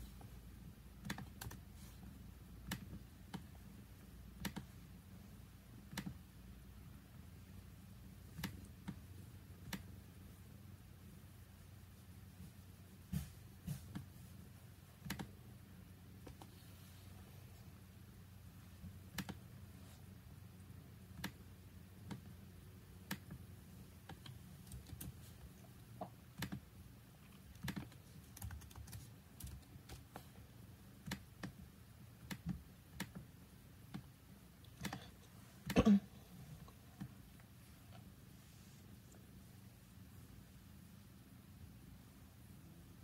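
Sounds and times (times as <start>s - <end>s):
low steady hum: 0.0s - 43.0s.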